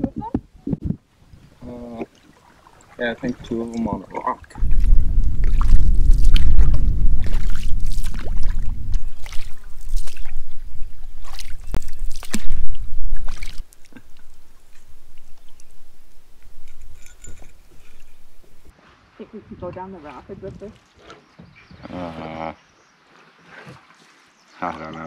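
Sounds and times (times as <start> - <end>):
water sloshing along hull: 1.0 - 21.9, 22.6 - 25.0
paddle strokes splashing: 1.9 - 16.6, 22.9 - 24.6
heavy low rumble: 4.6 - 13.4.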